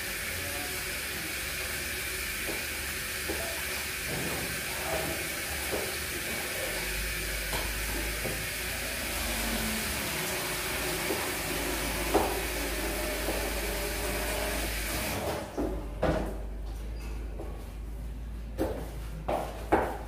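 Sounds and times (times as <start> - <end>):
tap water running into sink: 0.0 - 15.4.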